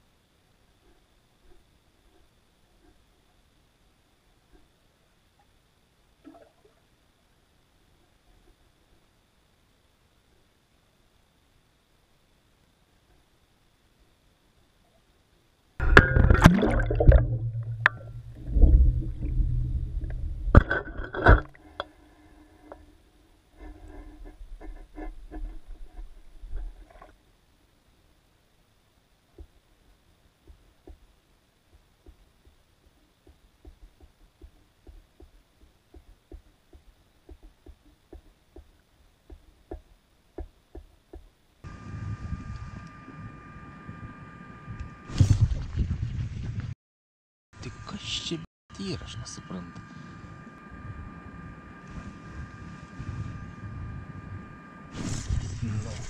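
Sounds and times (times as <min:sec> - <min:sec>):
low hum: 0:00.0 - 0:40.7, 0:41.3 - 0:46.7, 0:47.6 - 0:56.0
water gurgling and sloshing: 0:15.8 - 0:22.7.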